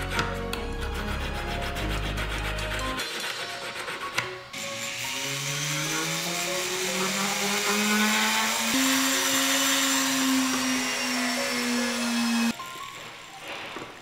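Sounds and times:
rotary tool whining: 3.0s - 14.0s.

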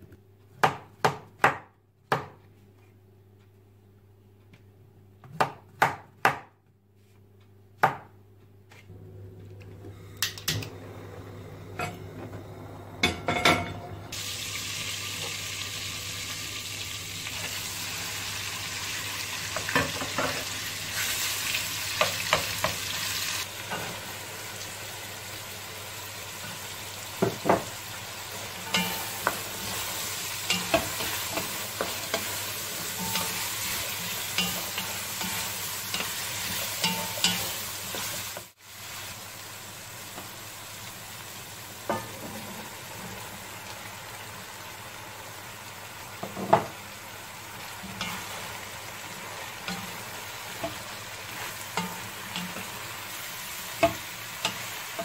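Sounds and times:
meat sizzling in a pot: 14.1s - 55.0s.

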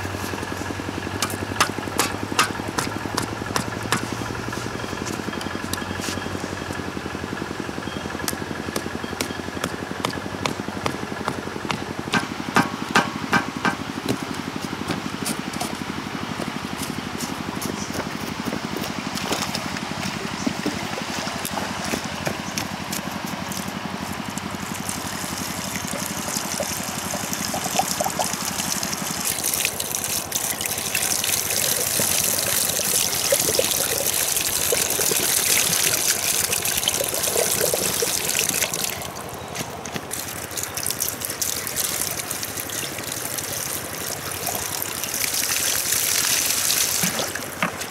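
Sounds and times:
water splashing and gushing: 18.6s - 47.9s.

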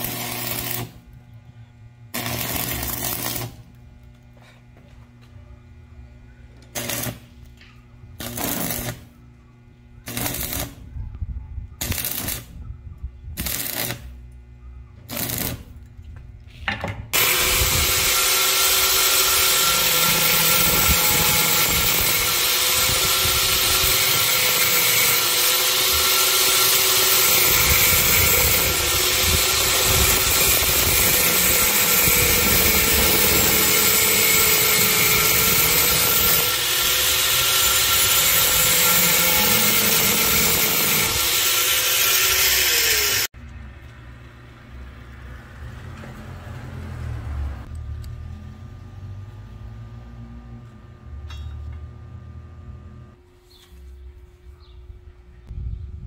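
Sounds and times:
stick welder crackling: 0.0s - 1.2s, 2.1s - 4.3s, 6.6s - 9.2s, 10.0s - 10.9s, 11.8s - 12.6s, 13.4s - 14.4s, 15.0s - 16.0s, 17.1s - 44.0s
angle grinder grinding steel: 17.2s - 43.3s.

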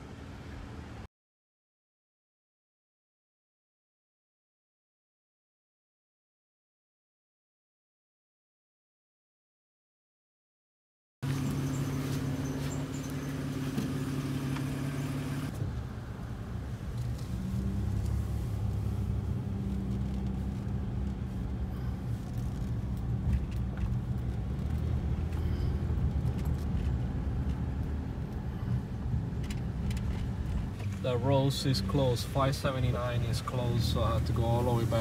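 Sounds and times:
vehicle engine and road noise: 0.0s - 1.1s, 11.2s - 35.0s.

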